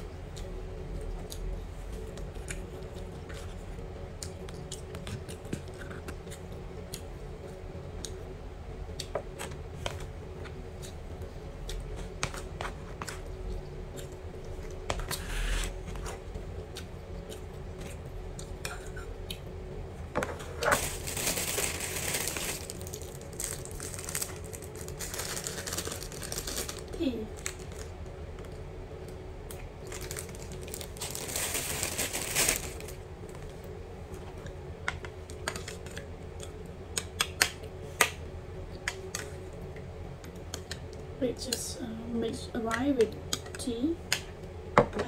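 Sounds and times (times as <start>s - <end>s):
low room hum: 0.0s - 45.0s
plastic bag rustling: 20.3s - 27.9s, 29.8s - 33.0s.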